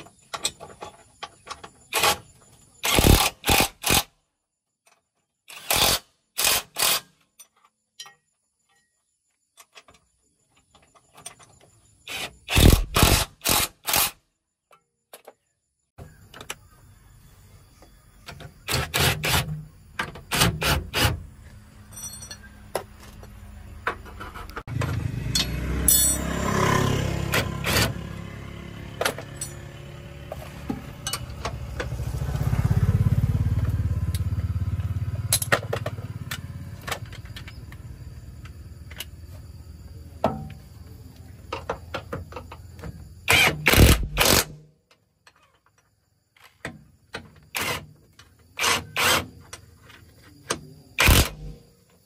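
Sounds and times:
vehicle engine rumbling: 0:19.6 - 0:43.2
sharp metal clanks: 0:21.8 - 0:22.7, 0:24.8 - 0:26.7.

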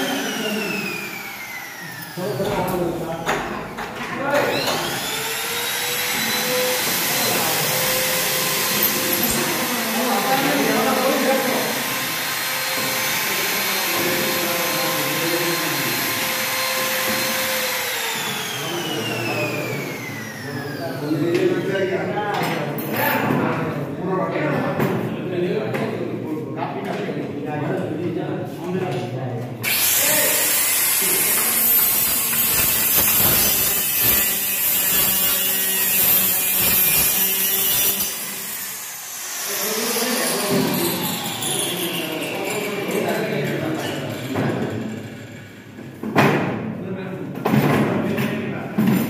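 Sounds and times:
circular saw cutting wood: 0:00.0 - 0:02.8, 0:04.2 - 0:21.7, 0:29.6 - 0:45.7
power tools whining at full speed: 0:00.0 - 0:21.9, 0:29.6 - 0:46.0.

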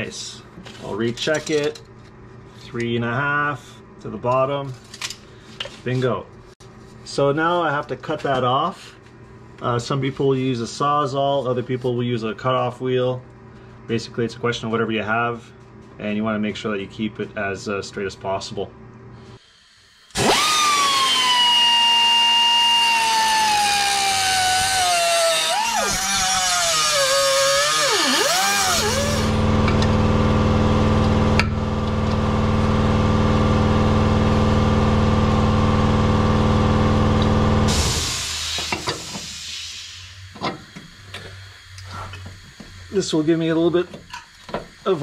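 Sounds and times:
low machine hum: 0:00.0 - 0:45.0
cutoff wheel whining through metal: 0:19.9 - 0:41.9.

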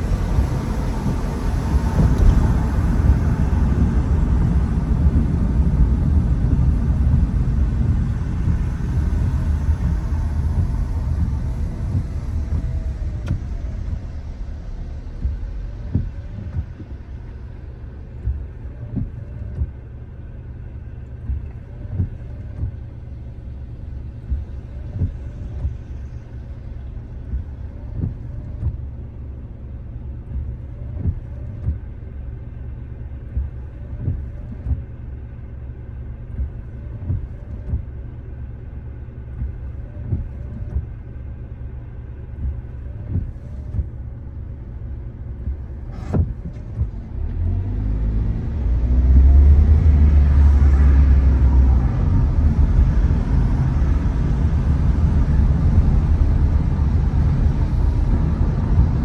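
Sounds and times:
car road rumble: 0:00.0 - 0:59.0
short thumps: 0:45.3 - 0:47.1.

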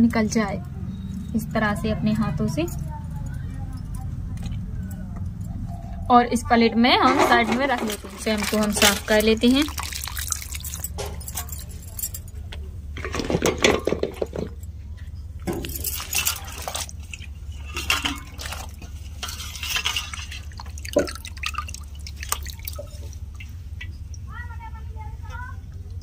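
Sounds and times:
water splashing in a bowl: 0:07.0 - 0:12.2, 0:15.4 - 0:24.3
water pouring off: 0:07.1 - 0:11.7, 0:15.4 - 0:23.9
water dripping: 0:07.4 - 0:12.3, 0:14.6 - 0:26.0.

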